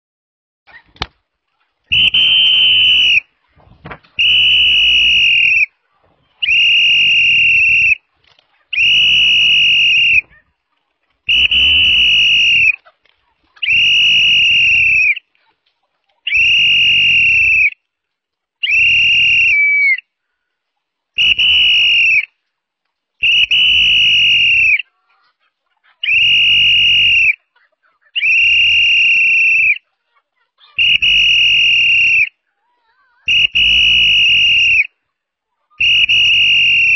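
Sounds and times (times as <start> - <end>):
whistle blasts: 1.9 - 3.3, 4.2 - 5.7, 6.4 - 8.0, 8.8 - 10.3, 11.3 - 12.8, 13.6 - 15.2, 16.3 - 17.8, 18.6 - 20.0, 21.2 - 22.3, 23.2 - 24.8, 26.0 - 27.4, 28.2 - 29.8, 30.8 - 32.4, 33.3 - 34.9, 35.8 - 36.9.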